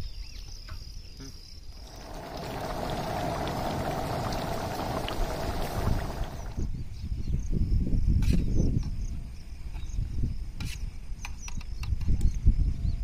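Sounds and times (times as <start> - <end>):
gravy bubbling with small pops: 1.8 - 6.7.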